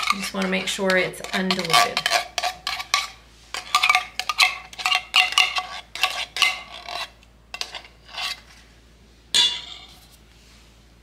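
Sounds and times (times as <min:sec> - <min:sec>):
metal spoon scraping tin can: 0:00.0 - 0:08.6.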